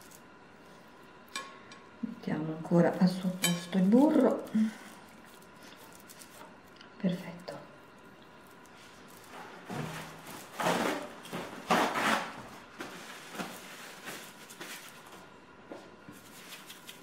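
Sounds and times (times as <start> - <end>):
noisy rustles or scrapes: 3.7 - 6.7, 8.4 - 15.2, 16.1 - 17.0.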